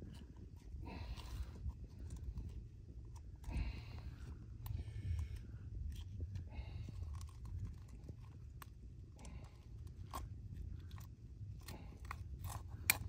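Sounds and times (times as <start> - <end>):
low steady rumble: 0.0 - 13.0
pliers clicking and scraping: 6.9 - 13.0.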